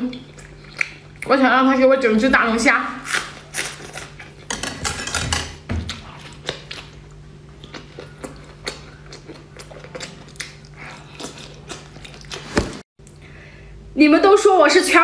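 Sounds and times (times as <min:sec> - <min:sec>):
steady low hum: 0:00.0 - 0:15.0
wet chewing and sucking: 0:00.2 - 0:01.3, 0:05.9 - 0:12.8.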